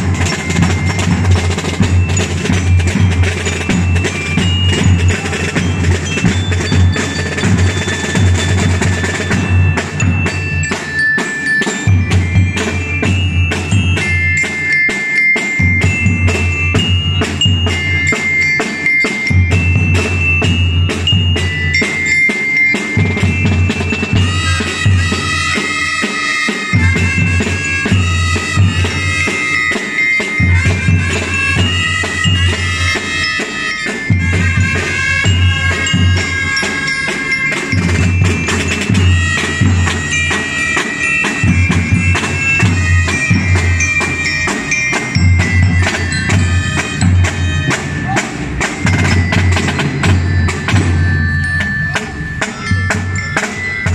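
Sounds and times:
bell lyre melody: 0.0s - 53.9s
marching drums: 0.0s - 53.9s
held brass notes: 23.7s - 44.6s, 45.7s - 49.2s.

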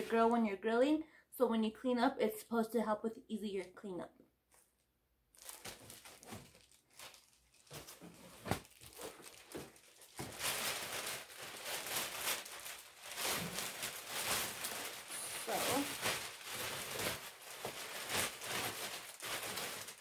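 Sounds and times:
plastic packaging crinkling: 5.3s - 20.0s.

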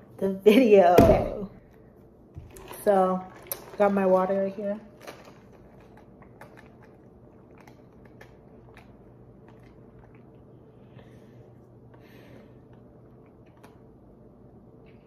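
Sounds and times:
low steady hum: 0.0s - 15.0s
person gulping water: 5.7s - 10.8s.

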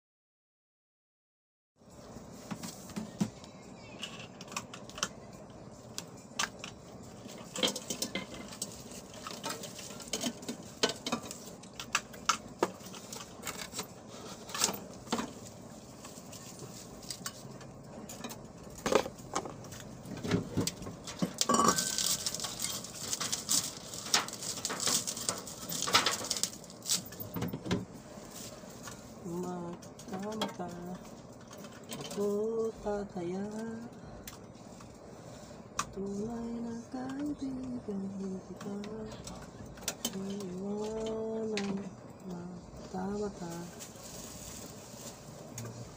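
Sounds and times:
paper and plastic rustling: 2.2s - 3.3s, 6.1s - 17.8s, 18.7s - 32.6s, 42.8s - 45.9s.

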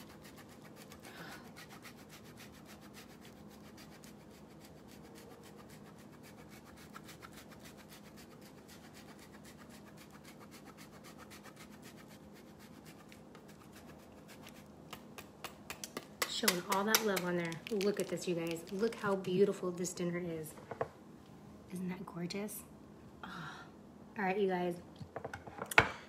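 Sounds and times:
cheese scraping on metal grater: 0.0s - 14.7s.

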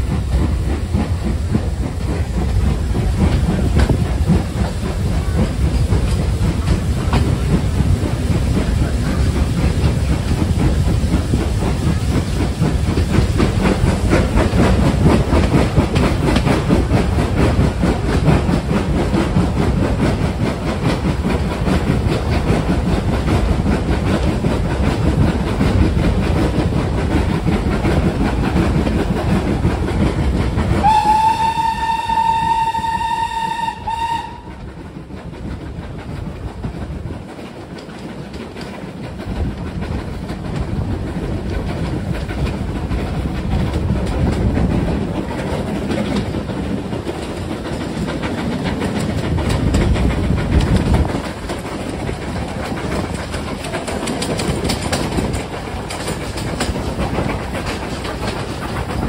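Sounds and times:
train carriage rumbling on rails: 0.0s - 59.0s
steam locomotive whistle: 30.8s - 34.6s.

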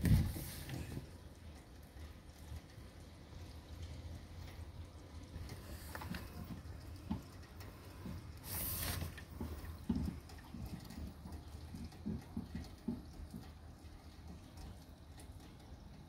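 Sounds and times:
rain dripping and pattering: 0.0s - 16.0s
short hiss: 8.4s - 9.2s.

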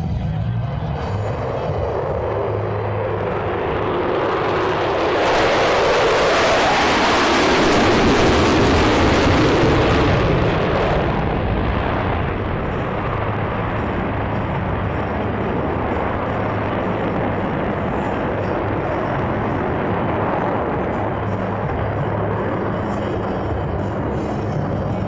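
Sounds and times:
jet aircraft flying past: 0.0s - 25.0s.

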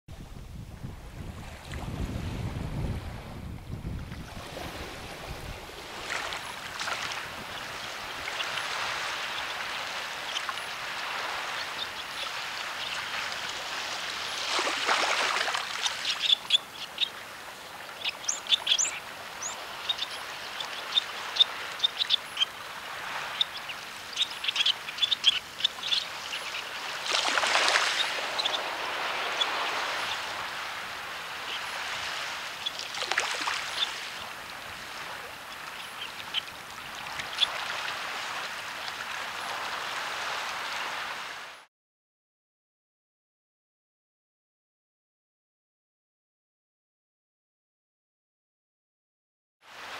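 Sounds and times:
waves lapping on stony shore: 4.0s - 41.7s.

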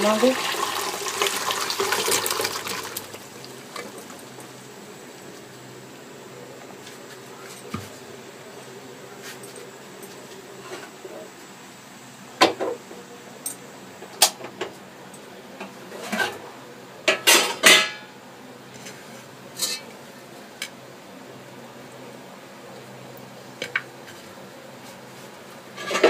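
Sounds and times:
metal kitchenware clinking and knocking: 17.1s - 18.1s.

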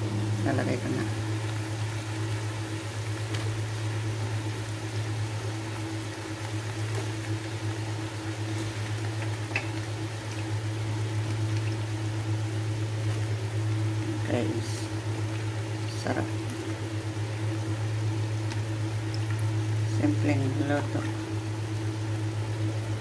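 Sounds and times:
constant low hum: 0.0s - 23.0s
food sizzling in frying pan: 0.0s - 23.0s.

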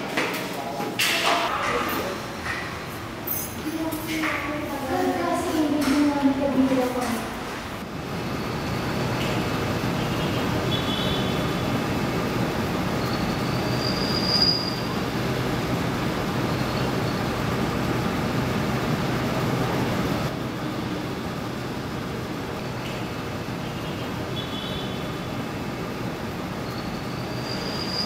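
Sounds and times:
traffic roar: 0.0s - 28.0s
faint high-pitched squeals: 13.0s - 15.0s, 26.6s - 28.0s.

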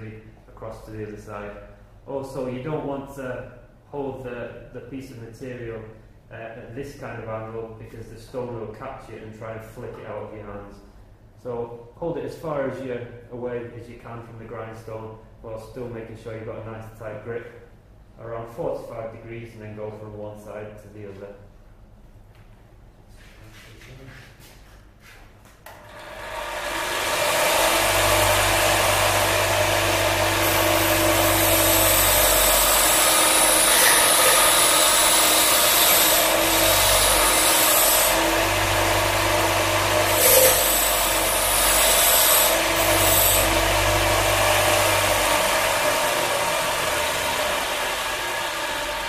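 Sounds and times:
bench grinder running: 25.8s - 49.0s
steel grinding on grindstone: 30.4s - 38.3s, 40.0s - 43.6s.

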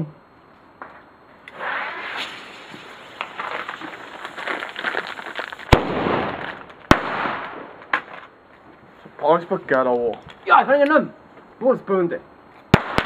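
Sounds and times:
firecracker hiss and crackles: 1.4s - 9.2s
loud firecracker bangs: 5.6s - 7.8s, 12.7s - 13.0s.

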